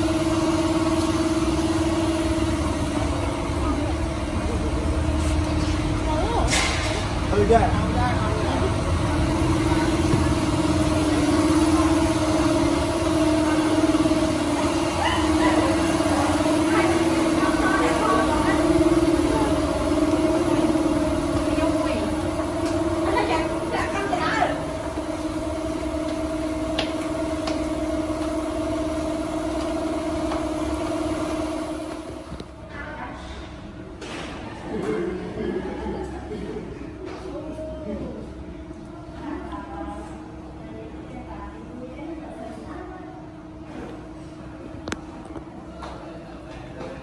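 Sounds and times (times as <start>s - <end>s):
engine idling: 0.0s - 32.5s
machine hum with low rumble: 0.0s - 47.0s.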